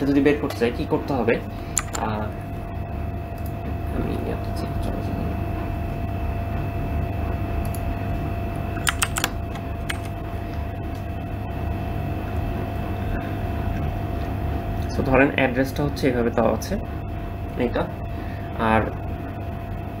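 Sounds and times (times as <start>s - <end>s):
low electrical hum: 0.0s - 20.0s
thin constant whine: 0.0s - 20.0s
sharp clicks: 1.7s - 2.1s, 8.8s - 10.2s.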